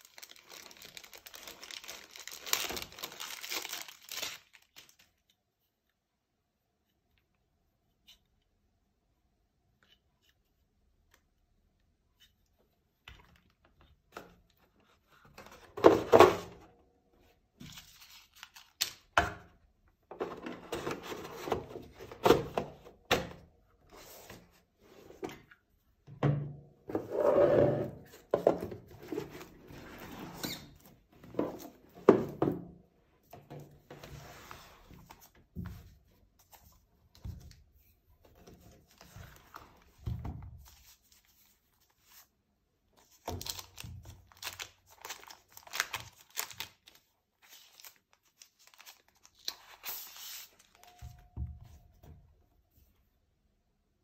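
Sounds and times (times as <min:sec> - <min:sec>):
packaging rustling: 0:00.0 - 0:05.1, 0:43.0 - 0:51.0
knocks and thunks of box handling: 0:15.7 - 0:16.5.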